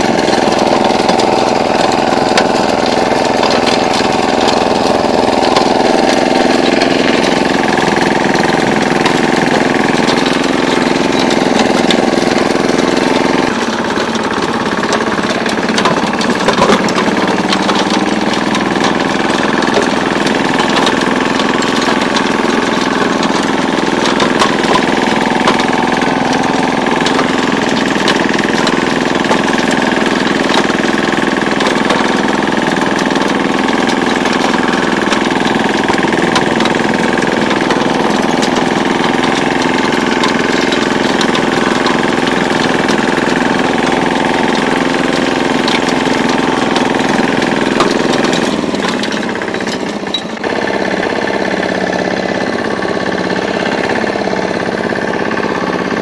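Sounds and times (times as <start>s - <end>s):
diesel engine knocking: 0.0s - 56.0s.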